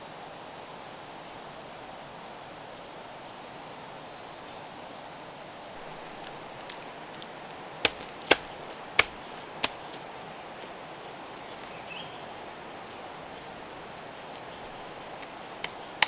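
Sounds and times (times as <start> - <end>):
insect drone with high whine: 0.0 - 16.0
sharp knocks: 7.8 - 9.8.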